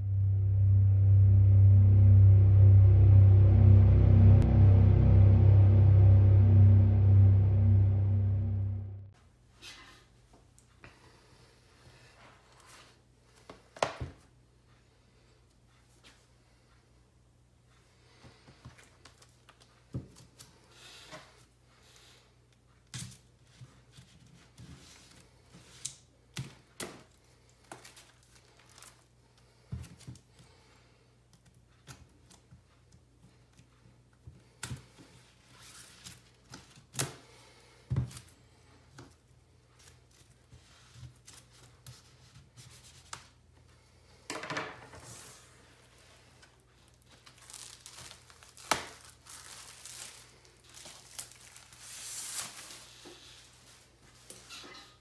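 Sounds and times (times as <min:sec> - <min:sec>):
plastic shrink wrap crinkling: 0:27.0 - 0:29.1, 0:46.7 - 0:53.0.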